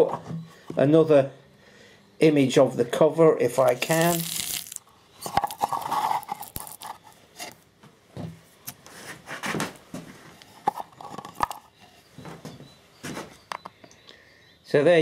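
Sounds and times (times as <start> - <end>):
battery cells clicking and rubbing: 3.6 - 7.6, 10.5 - 11.8.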